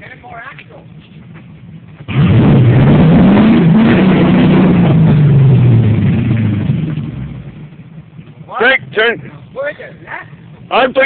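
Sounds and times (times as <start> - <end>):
engine revving hard: 2.1 - 7.5.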